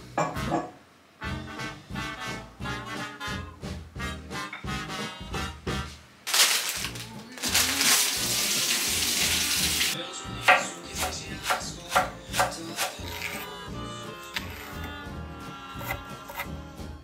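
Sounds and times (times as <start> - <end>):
light background music: 0.0 - 17.0
tap water running into sink: 7.5 - 10.6
knife slicing on wooden board: 10.5 - 13.5, 14.3 - 14.9.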